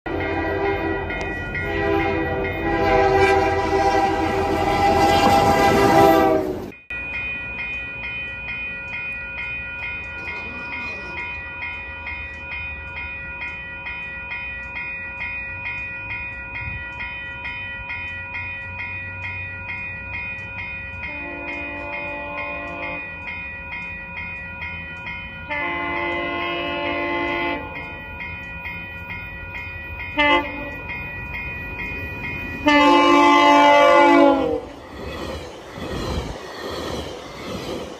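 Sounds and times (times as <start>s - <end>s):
distant train horn: 0.1s - 6.8s, 21.0s - 23.1s, 25.5s - 27.8s, 30.1s - 30.9s, 32.6s - 34.8s
locomotive horn blasts: 0.1s - 6.8s, 21.1s - 23.1s, 25.5s - 27.8s, 30.2s - 30.8s, 32.6s - 34.8s
railway crossing bell ringing: 0.1s - 36.5s.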